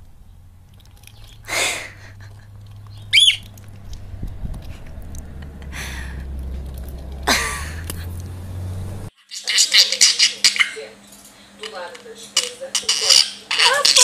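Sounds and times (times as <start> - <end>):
steady low hum: 0.0 - 9.1
parrot squawking: 1.1 - 3.6
parrot whistle: 2.9 - 3.5.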